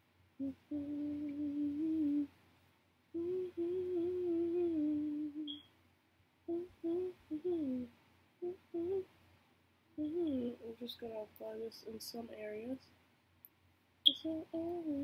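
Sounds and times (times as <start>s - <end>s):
woman humming a slow tune: 0.4s - 2.3s, 3.2s - 5.6s, 6.5s - 9.1s, 10.0s - 10.8s, 14.1s - 15.0s.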